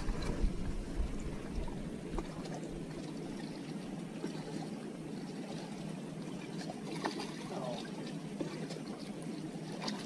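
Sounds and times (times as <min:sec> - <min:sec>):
low rumbling buffets: 0:00.0 - 0:04.0
water lapping against boat hull: 0:00.0 - 0:10.0.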